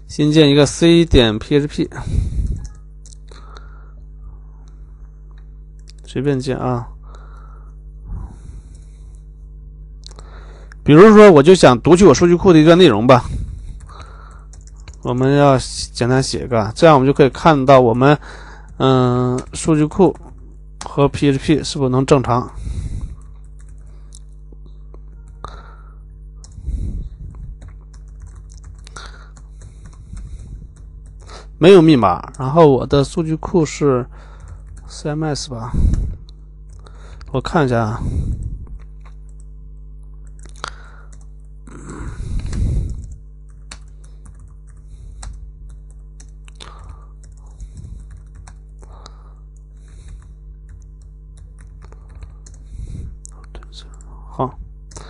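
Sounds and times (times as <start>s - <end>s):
steady low hum: 0.0s - 55.0s
keyboard keys clicking: 13.8s - 15.3s, 27.6s - 30.0s, 43.5s - 48.7s.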